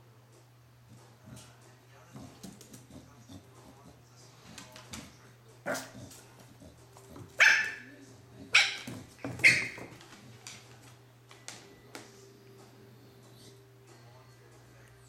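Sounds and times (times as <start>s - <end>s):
puppy barking: 5.6s - 6.1s, 7.3s - 7.9s, 8.5s - 9.9s.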